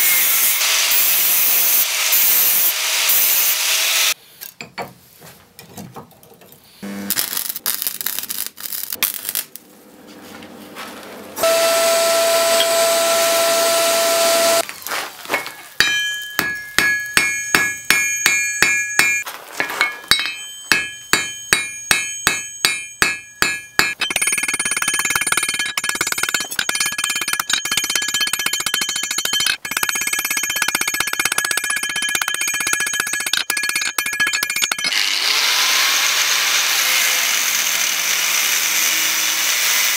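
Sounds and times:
hammer striking metal on anvil: 15.4 - 35.0.

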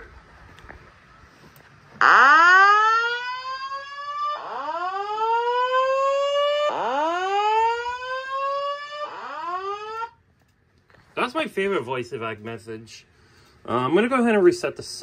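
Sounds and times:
fire alarm rising whoop tone: 2.0 - 10.2.

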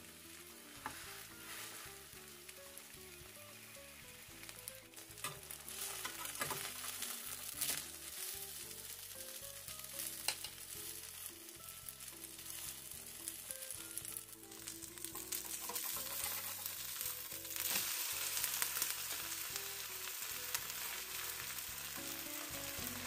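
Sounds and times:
pancake sizzling in oil: 0.0 - 23.0
soft background music: 0.0 - 23.0
metal spatula scraping pan: 0.8 - 2.1, 5.2 - 7.8, 15.4 - 16.9.

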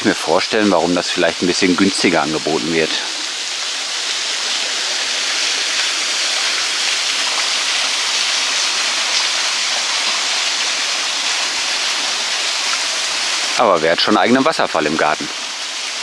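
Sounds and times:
waterfall splashing: 0.0 - 16.0.

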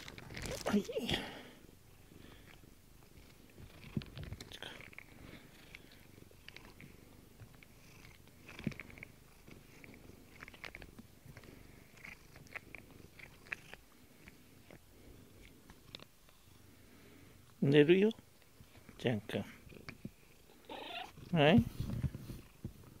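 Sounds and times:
cat purring: 0.0 - 23.0.

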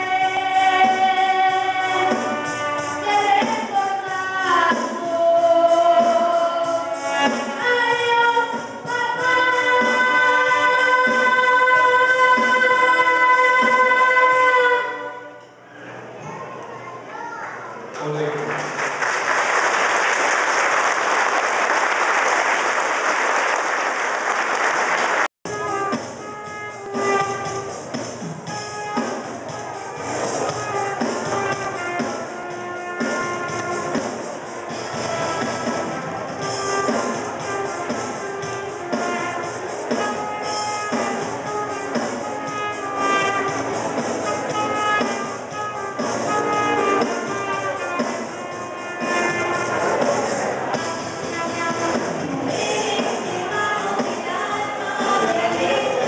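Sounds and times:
brass band playing: 0.0 - 15.7, 18.6 - 56.0
music: 0.0 - 23.1, 25.4 - 56.0
crowd applauding: 18.1 - 25.3.

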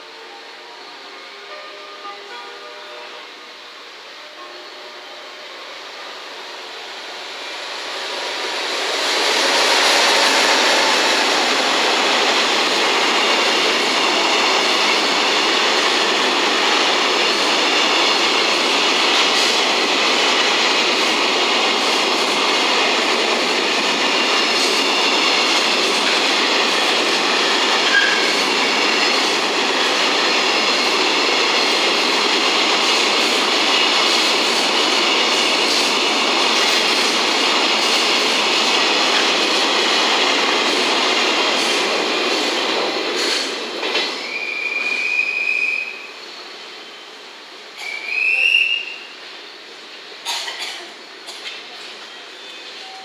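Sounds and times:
train wheels rumbling on rails: 4.2 - 53.0
high squeak: 27.9 - 28.4.

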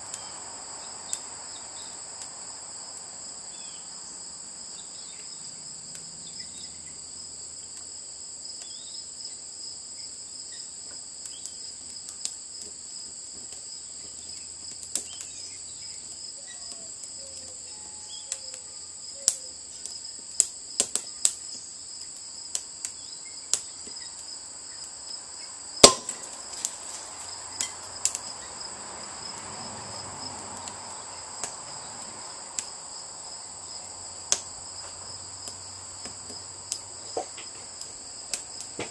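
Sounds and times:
crickets chirring: 0.0 - 38.9
wood fire crackling: 0.0 - 38.9
sharp pops: 25.8 - 27.0.

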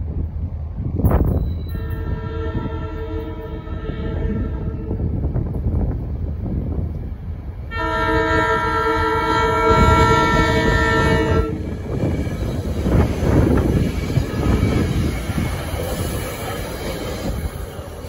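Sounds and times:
train rumble: 0.0 - 18.0
train horn blast: 1.7 - 5.2, 7.7 - 11.7.

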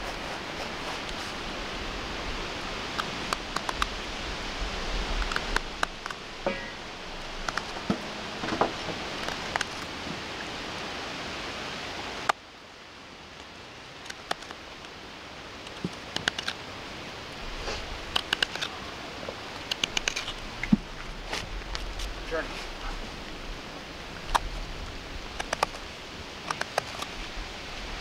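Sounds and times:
background hiss: 0.0 - 28.0
knife carving wood: 18.1 - 18.7.

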